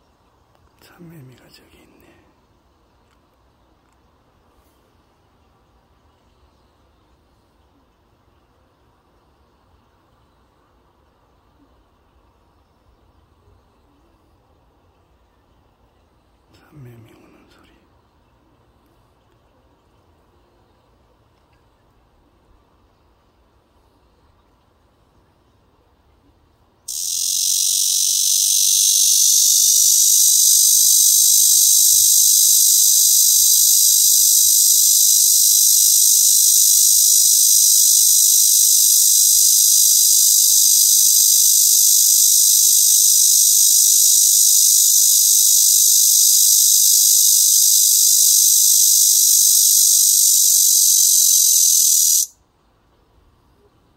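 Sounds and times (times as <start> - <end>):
cicada buzzing: 26.9 - 52.3.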